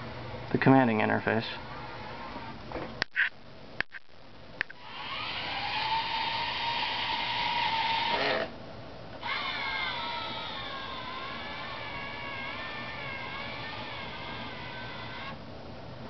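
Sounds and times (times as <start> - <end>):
robot motors whining: 4.7 - 8.5, 9.2 - 15.4.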